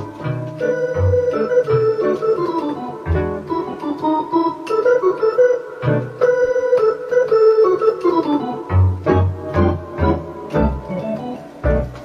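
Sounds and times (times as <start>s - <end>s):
low organ bass notes: 0.0s - 5.2s, 8.0s - 12.0s
electronic organ melody with chords: 0.0s - 12.0s.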